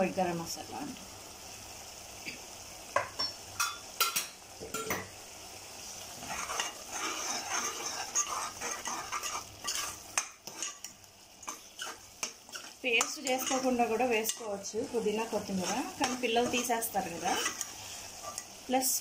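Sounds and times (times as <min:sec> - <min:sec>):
oil sizzling: 0:00.0 - 0:19.0
metal spoon scraping a pot: 0:06.2 - 0:10.9, 0:11.5 - 0:14.5, 0:15.4 - 0:18.5.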